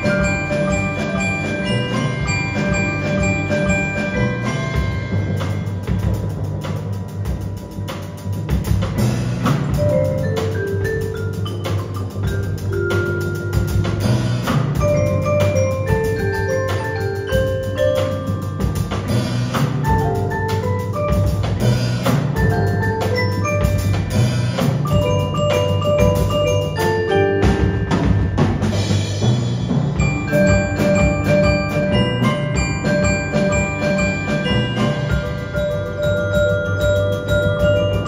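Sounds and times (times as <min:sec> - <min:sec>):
low bass notes: 0:00.0 - 0:16.7
drum kit beat: 0:00.0 - 0:38.0
marimbas and vibraphone: 0:00.0 - 0:38.0.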